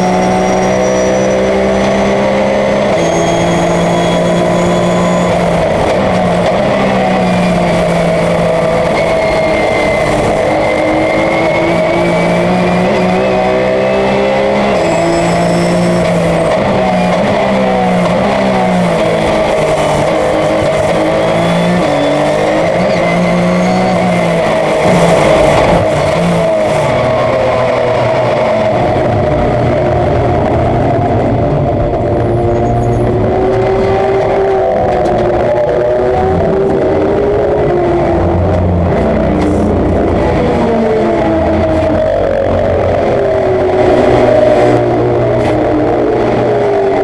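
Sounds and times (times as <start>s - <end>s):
race car engine shifting gears: 4.4s - 29.6s.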